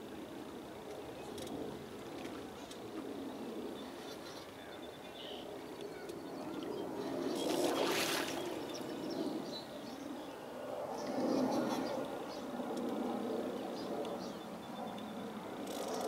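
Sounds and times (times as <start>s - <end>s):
wind: 0.0s - 16.0s
lake water lapping: 7.0s - 8.9s.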